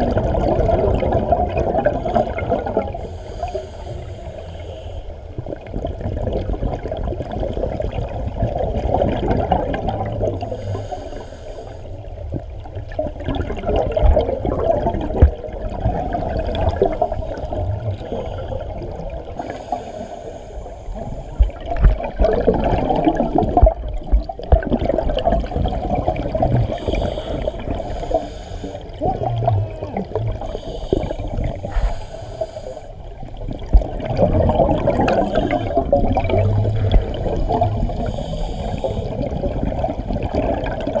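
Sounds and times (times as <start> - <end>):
underwater bubbles gurgling: 0.0 - 41.0
regulator breathing: 17.1 - 21.9, 26.7 - 29.0, 30.4 - 33.3, 37.9 - 39.3.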